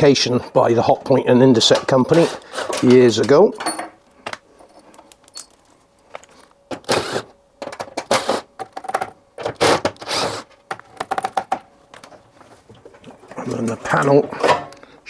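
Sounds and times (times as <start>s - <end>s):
cordless drill running: 9.6s - 10.4s.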